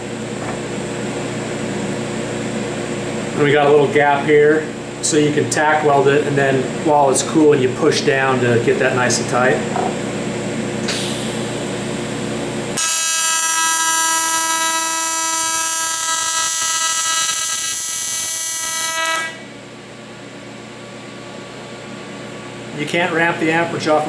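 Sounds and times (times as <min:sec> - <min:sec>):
welding arc buzzing: 0:10.9 - 0:19.5.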